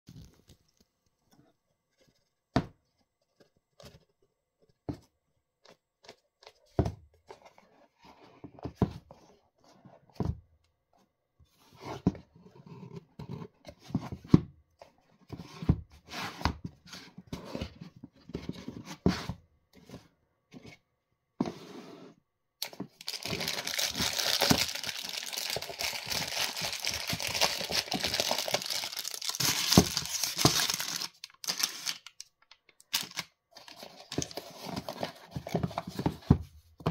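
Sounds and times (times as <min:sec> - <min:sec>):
packaging crinkling and rustling: 0:22.6 - 0:36.2.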